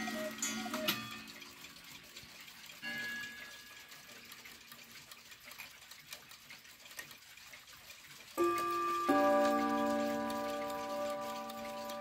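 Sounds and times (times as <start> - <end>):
clock ticking: 0.0 - 12.0
clock rod gong chime: 8.4 - 12.0.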